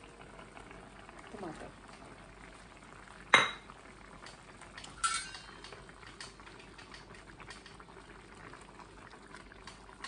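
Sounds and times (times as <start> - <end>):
curry bubbling in a pan: 0.0 - 10.0
metallic clink of pan lid: 4.9 - 5.8.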